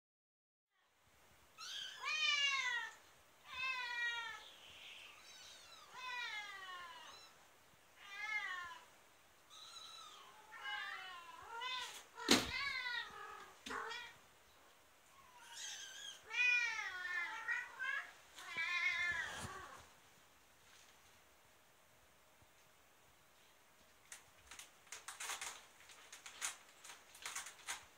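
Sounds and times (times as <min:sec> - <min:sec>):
cats meowing: 0:01.6 - 0:07.4, 0:08.0 - 0:08.9, 0:09.5 - 0:14.2, 0:15.0 - 0:19.9
kitten falling thump: 0:12.3 - 0:12.7.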